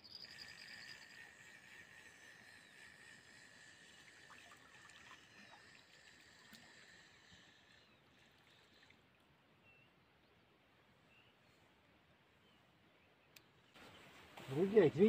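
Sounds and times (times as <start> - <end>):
faint bird chirps: 0.0 - 4.5
insect trill: 0.0 - 7.3.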